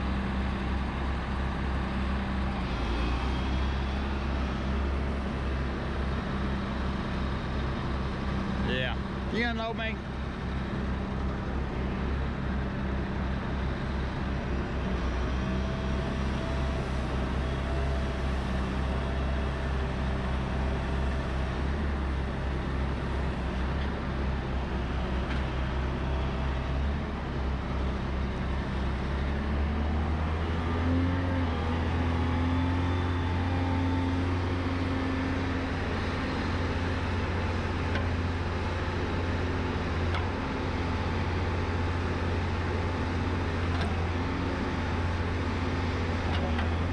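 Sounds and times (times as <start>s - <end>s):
diesel engine idling: 0.0s - 30.7s.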